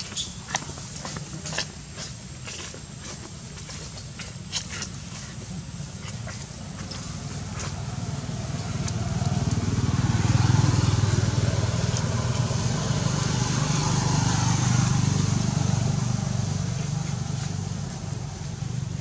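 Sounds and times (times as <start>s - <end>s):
vehicle engine humming: 0.0s - 19.0s.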